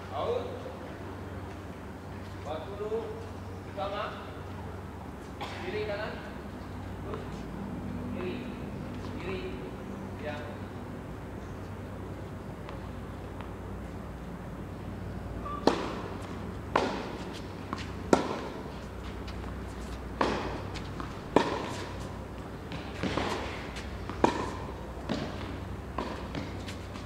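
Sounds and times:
tennis ball bouncing: 0:15.4 - 0:27.0
tennis ball struck by rackets: 0:15.4 - 0:27.0.

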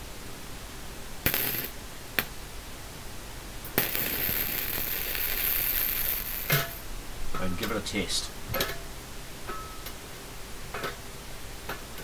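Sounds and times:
welder arc crackling: 0:01.2 - 0:02.3, 0:03.6 - 0:06.9.

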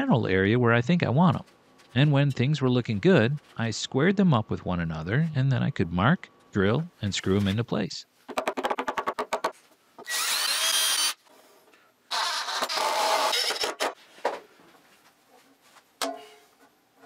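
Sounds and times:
power drill whining: 0:10.0 - 0:11.2, 0:12.1 - 0:13.8.

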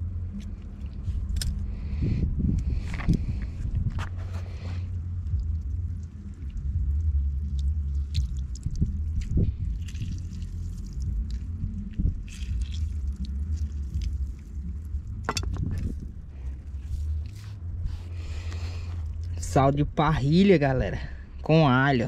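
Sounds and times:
steady low rumble: 0:00.0 - 0:22.0
lemon squishing: 0:04.2 - 0:19.4
juice dripping: 0:04.2 - 0:19.5.

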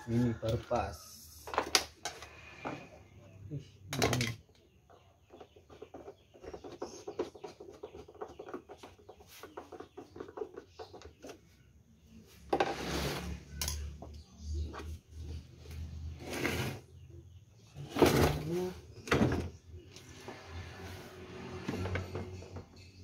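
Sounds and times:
plastic scraping on concrete: 0:03.9 - 0:11.6, 0:12.2 - 0:22.8.

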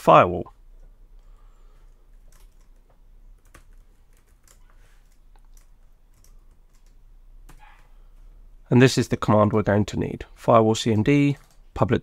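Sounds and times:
faint keyboard typing: 0:00.8 - 0:08.0, 0:11.2 - 0:11.8.

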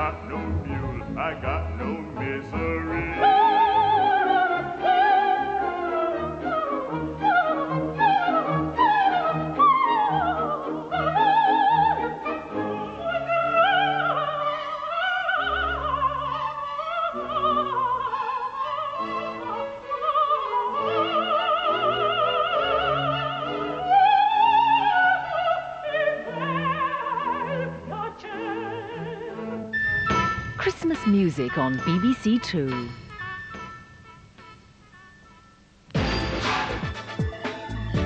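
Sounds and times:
orchestra playing: 0:29.7 - 0:34.3
opera singer holding notes: 0:30.5 - 0:33.4.

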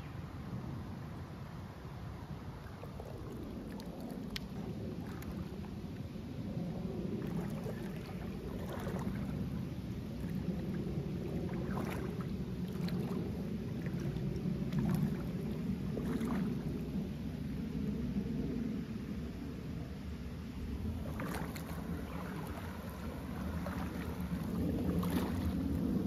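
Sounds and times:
rushing river water: 0:02.2 - 0:06.0, 0:07.0 - 0:17.0, 0:20.7 - 0:26.0
dog wading through water: 0:02.2 - 0:18.8, 0:19.4 - 0:26.0.

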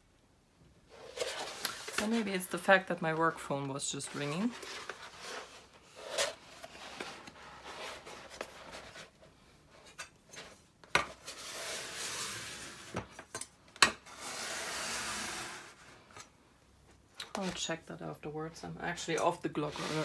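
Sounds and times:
plastic film rustling and sliding: 0:00.9 - 0:09.2, 0:19.5 - 0:20.0.

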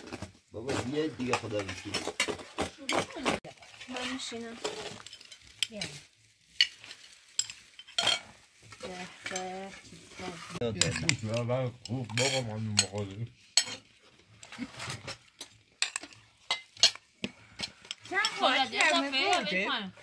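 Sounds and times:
spoons clinking on plates: 0:06.5 - 0:08.4, 0:10.8 - 0:14.5, 0:15.2 - 0:17.0, 0:17.6 - 0:19.6.

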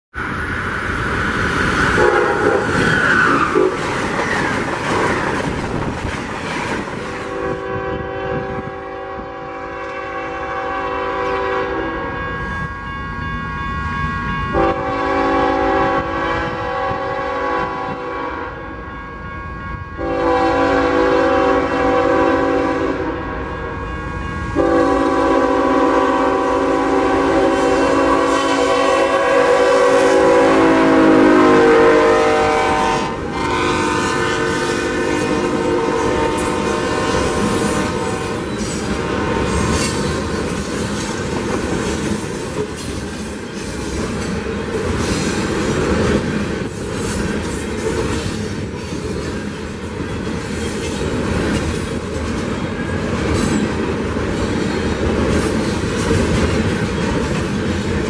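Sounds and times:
locomotive air horn blasts: 0:01.9 - 0:02.8, 0:07.2 - 0:39.8.

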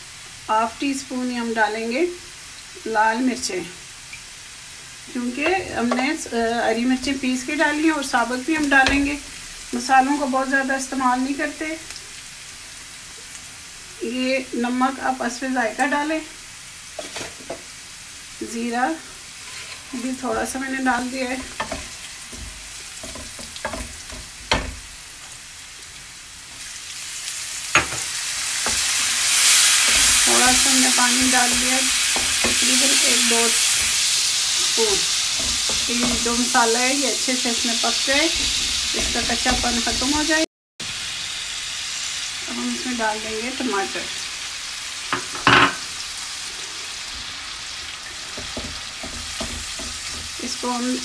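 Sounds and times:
food sizzling in oil: 0:00.0 - 0:51.0
spatula scraping a pan: 0:17.0 - 0:17.6, 0:19.3 - 0:25.4, 0:27.8 - 0:36.7.

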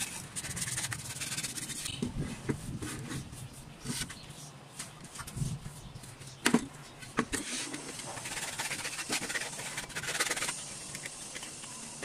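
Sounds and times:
sandpaper scrubbing wood: 0:00.0 - 0:01.9, 0:07.4 - 0:10.9.

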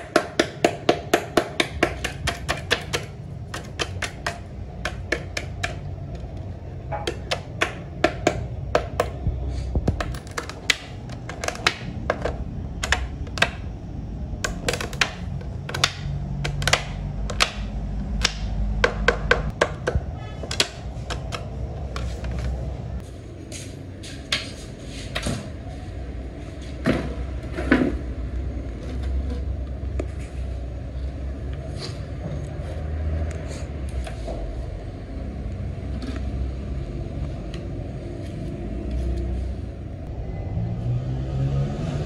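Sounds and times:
steady low hum: 0:00.0 - 0:32.6
blade scraping helmet shell: 0:06.9 - 0:13.7, 0:19.5 - 0:22.7.

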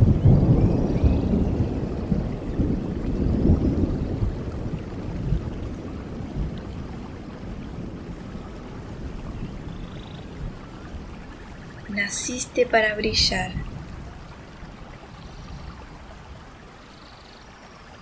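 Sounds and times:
low rushing rumble: 0:08.0 - 0:14.9.

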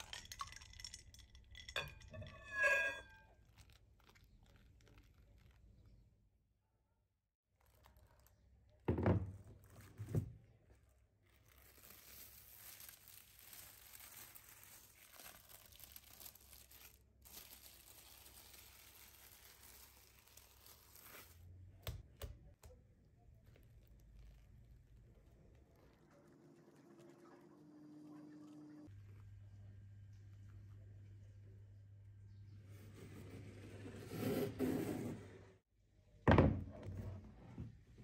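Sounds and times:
cling film crinkling: 0:03.3 - 0:06.1, 0:07.5 - 0:08.8, 0:10.6 - 0:21.9, 0:23.1 - 0:26.3.

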